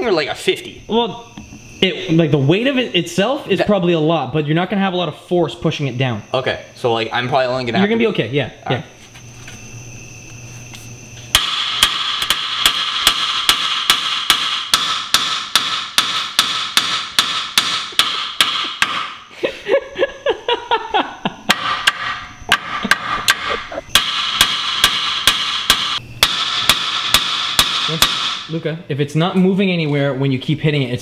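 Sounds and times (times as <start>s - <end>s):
hammer striking steel: 11.3s - 19.2s, 21.5s - 28.6s.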